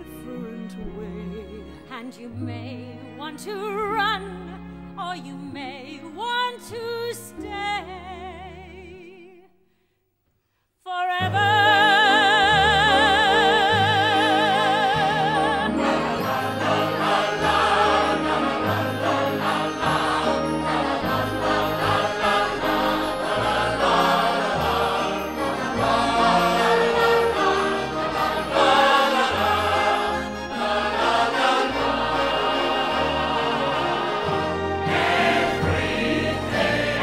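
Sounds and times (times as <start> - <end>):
choir singing: 11.4 - 37.0
orchestra playing: 11.4 - 37.0.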